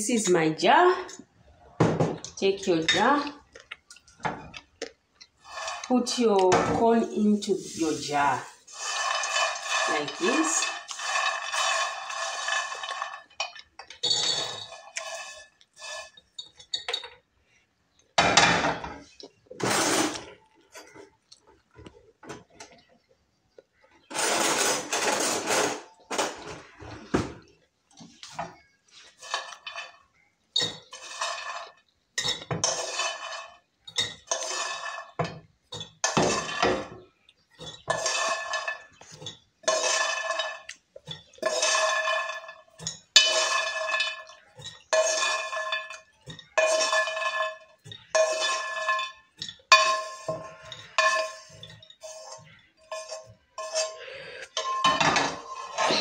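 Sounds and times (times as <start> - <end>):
spoon scraping metal pan: 5.3 - 17.0, 18.2 - 21.1, 24.0 - 27.1, 28.2 - 56.0
nuts clattering into glass jar: 9.0 - 15.4.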